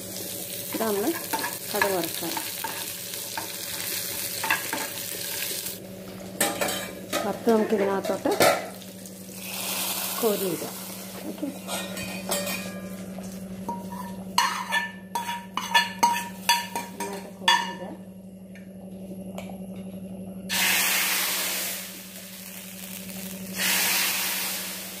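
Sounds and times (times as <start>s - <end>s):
curry sizzling in hot pan: 0.0s - 5.8s, 6.4s - 12.8s, 20.5s - 25.0s
ladle clinking against metal pan: 13.7s - 17.8s.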